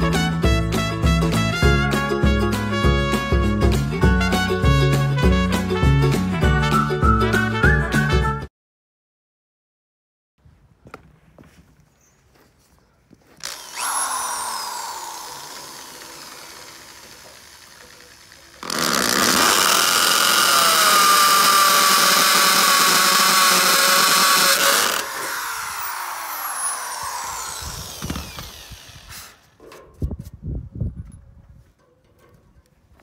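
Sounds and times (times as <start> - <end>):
power drill drilling into concrete: 13.4 - 29.6.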